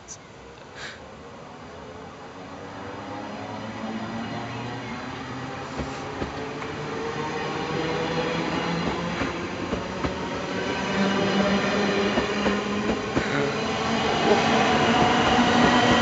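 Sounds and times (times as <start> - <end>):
rolling coaches rumbling: 3.3 - 16.0.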